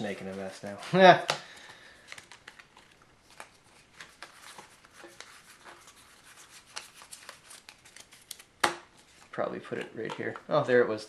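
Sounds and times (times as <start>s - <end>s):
cards sliding and rubbing: 2.1s - 9.8s
cards clicking: 6.6s - 9.0s.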